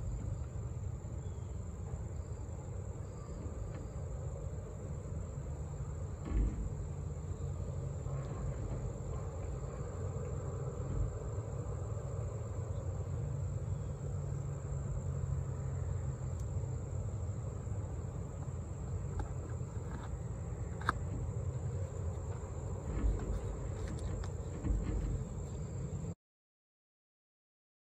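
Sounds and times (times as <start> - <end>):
soft knocks from handling: 6.2 - 7.4, 20.8 - 25.8.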